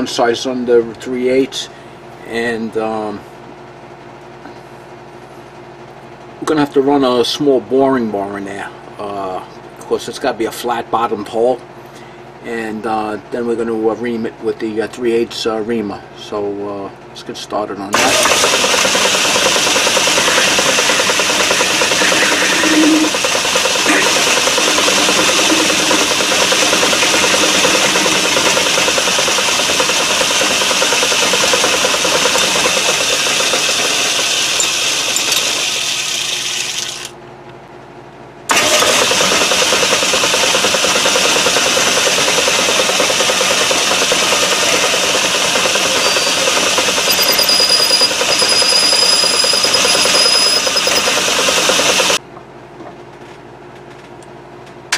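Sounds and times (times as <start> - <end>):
metal lathe running: 18.0 - 37.1, 38.5 - 52.2.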